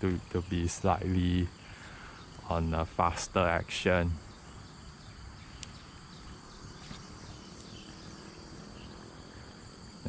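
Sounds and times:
insects shrilling: 0.0 - 10.0
faint click: 5.6 - 5.8.

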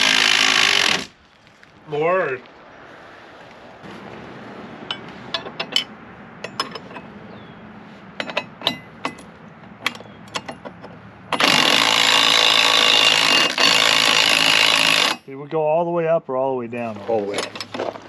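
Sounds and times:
electric motor running: 0.0 - 1.1, 11.4 - 15.2.

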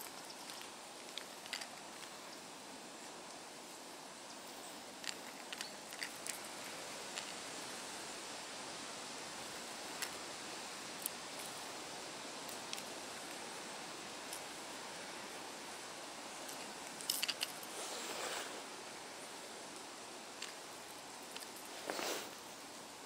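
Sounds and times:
rustling: 0.0 - 22.9
outdoor hiss: 0.0 - 23.0
metal lure parts clicking: 0.1 - 2.1, 5.0 - 6.5, 16.5 - 17.6.

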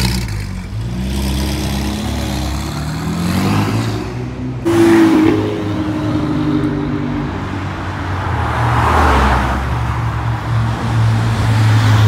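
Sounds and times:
car passing by: 8.2 - 9.7.

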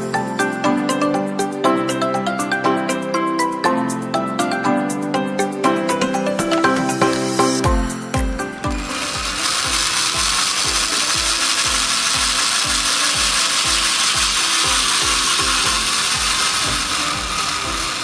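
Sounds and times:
drill boring through plastic: 6.5 - 18.0.

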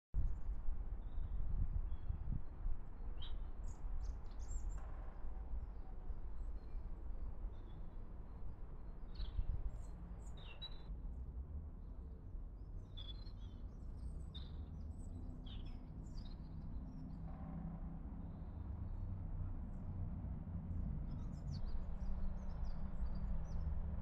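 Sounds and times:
songbirds chirping: 12.4 - 17.3, 20.8 - 24.0.

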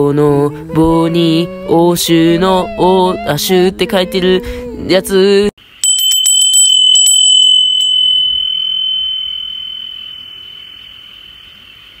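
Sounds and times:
wind chime clinking and ringing: 5.8 - 11.5.

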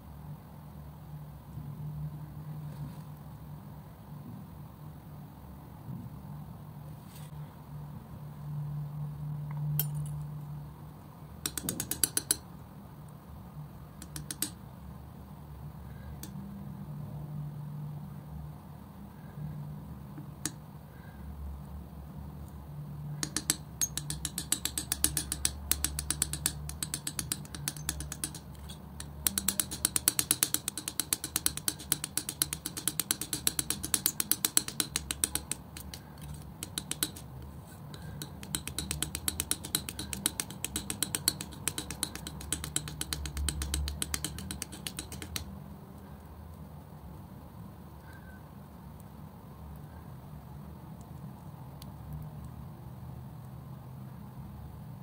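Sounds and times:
steady low hum: 0.0 - 55.0
palette knife clicking in wet paint: 11.5 - 12.4, 14.0 - 14.6, 23.2 - 45.5.

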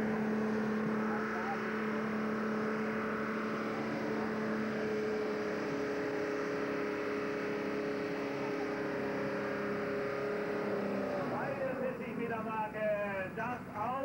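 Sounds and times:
tractor diesel engine droning: 0.0 - 14.0.

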